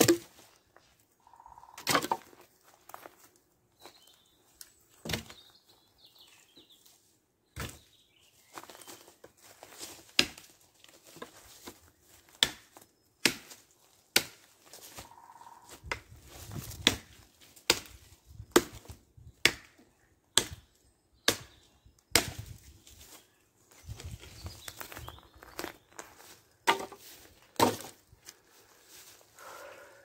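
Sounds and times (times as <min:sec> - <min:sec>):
knife chopping branch: 0:12.4 - 0:14.4, 0:22.1 - 0:22.5.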